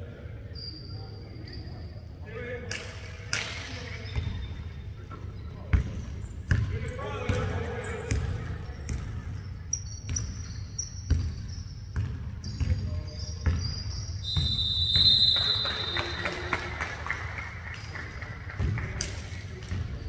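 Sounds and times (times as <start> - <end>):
sneakers squeaking: 0.5 - 2.2, 2.8 - 16.8, 17.7 - 20.0
basketball bouncing on hard court: 5.7 - 6.7, 8.1 - 9.2, 10.1 - 13.7, 18.6 - 20.0.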